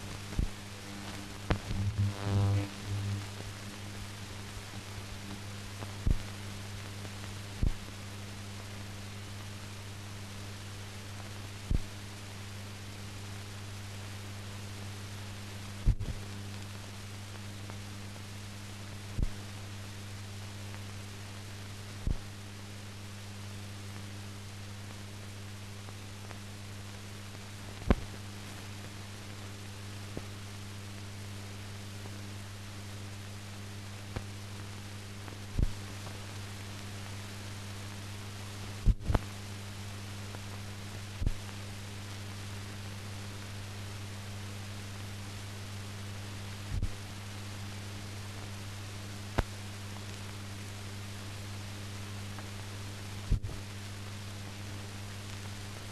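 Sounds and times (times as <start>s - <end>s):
low hum: 0.0s - 8.4s
steady hiss: 0.0s - 55.9s
low thumps: 1.5s - 2.2s.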